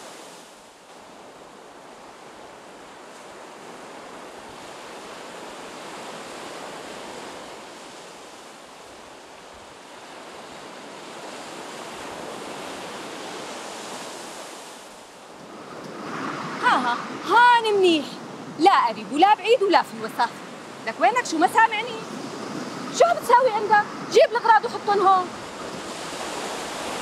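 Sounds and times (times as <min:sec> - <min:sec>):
waves breaking on a beach: 0:00.0 - 0:27.0.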